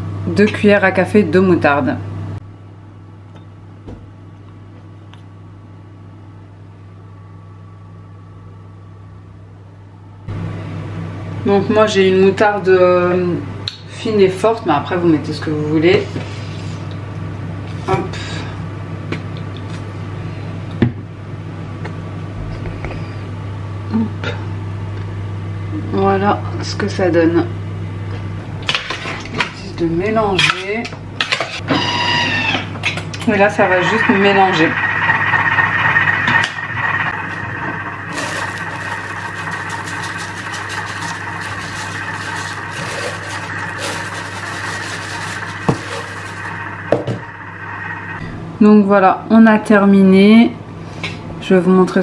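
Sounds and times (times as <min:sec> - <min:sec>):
steady low hum: 0:00.0 - 0:31.7, 0:32.7 - 0:52.0
rice grains poured into boiling water: 0:37.1 - 0:47.8.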